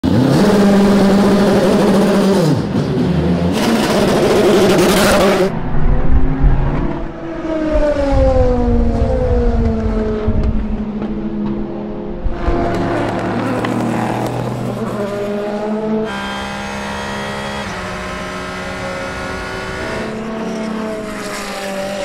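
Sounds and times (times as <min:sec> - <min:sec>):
race car engine revving: 0:00.0 - 0:22.0
race car passing at speed: 0:00.1 - 0:22.0
harsh rush of noise: 0:03.6 - 0:09.6.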